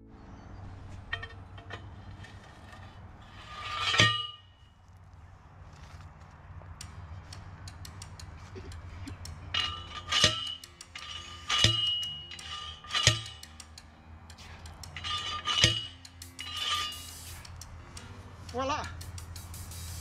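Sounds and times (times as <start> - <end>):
post driver clanging on metal picket: 1.1 - 2.0, 3.5 - 4.6, 7.6 - 17.2
light metal clinks: 7.6 - 18.2.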